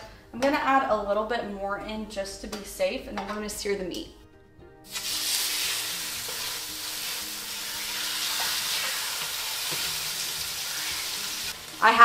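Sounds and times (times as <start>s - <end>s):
steaks sizzling in fat: 4.9s - 12.0s.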